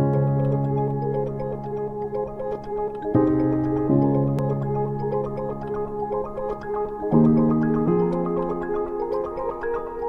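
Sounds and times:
held keyboard chords: 0.0s - 10.0s.

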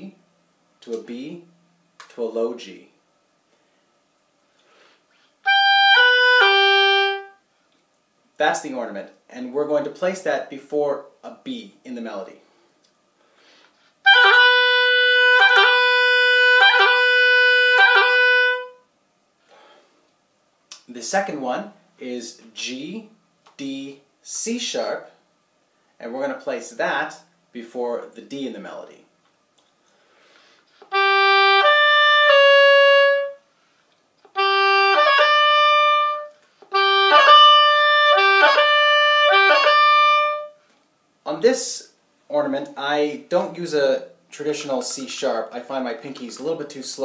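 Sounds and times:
oboe holding a reedy note: 5.5s - 7.4s, 14.0s - 18.8s, 30.8s - 33.4s, 34.3s - 40.6s.

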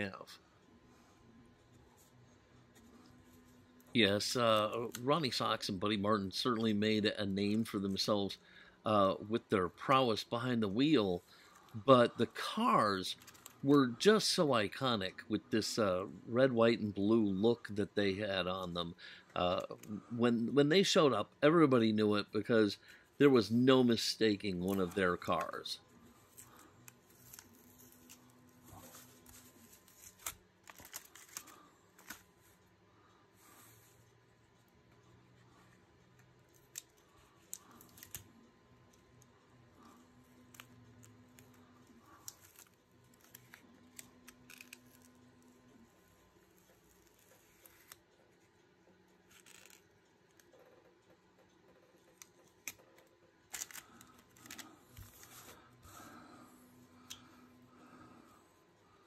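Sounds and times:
masking tape peeling: 39.8s - 45.2s, 49.3s - 49.8s, 53.5s - 55.6s.

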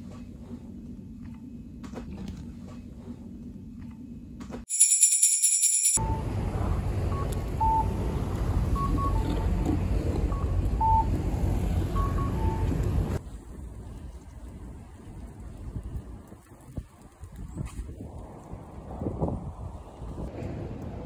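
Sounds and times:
street noise rumble: 6.0s - 21.0s.

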